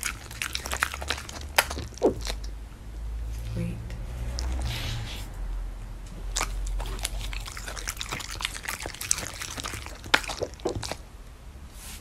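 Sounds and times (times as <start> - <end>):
dog chewing meat: 0.0 - 2.6, 4.3 - 4.9, 6.1 - 11.1.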